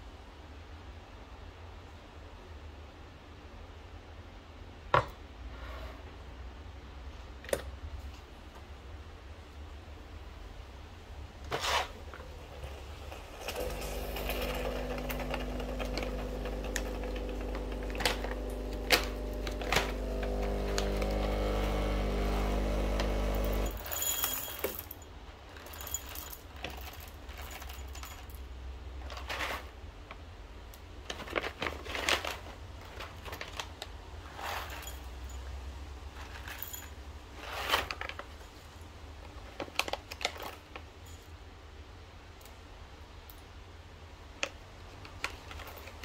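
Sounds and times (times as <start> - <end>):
items clicking and clattering: 11.5 - 28.4, 31.0 - 35.4, 39.2 - 41.3, 44.4 - 46.0
espresso machine pump humming: 13.2 - 23.8.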